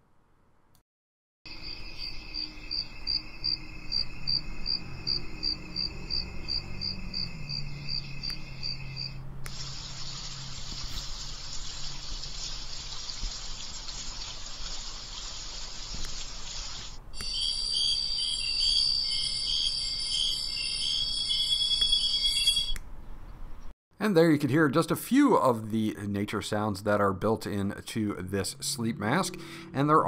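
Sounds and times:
crickets chirping: 0:01.5 - 0:13.8, 0:16.2 - 0:22.8
rushing water: 0:09.5 - 0:17.0.

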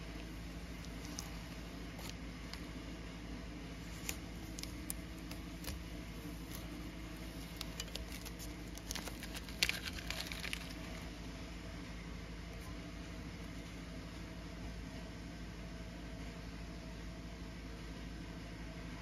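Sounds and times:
steady low hum: 0:00.0 - 0:19.0
tape peeling and crinkling: 0:00.1 - 0:02.7, 0:03.8 - 0:11.2.

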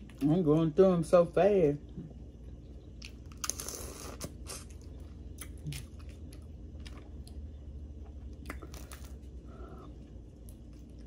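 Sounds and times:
chewing: 0:02.8 - 0:11.0.

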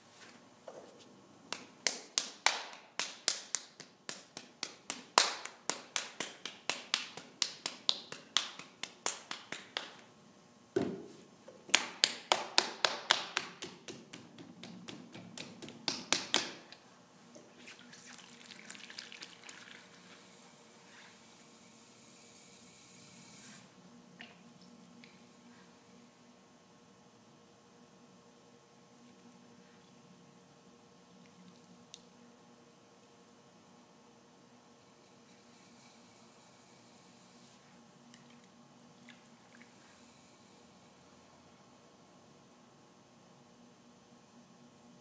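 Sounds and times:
soft steady hiss: 0:00.0 - 0:45.0
hands slapping wet clay: 0:01.5 - 0:10.0, 0:11.7 - 0:16.8.

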